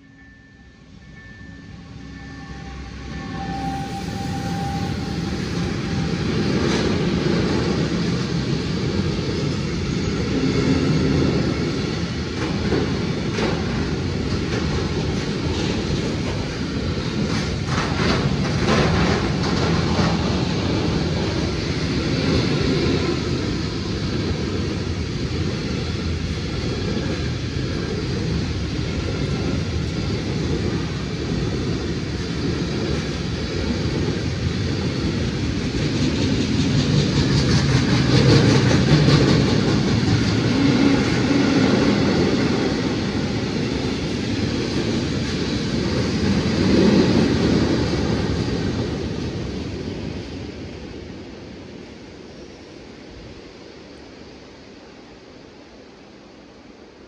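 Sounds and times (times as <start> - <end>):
train rail rumble: 0.0 - 57.0
train wheel clicks: 17.2 - 21.3, 35.9 - 41.9.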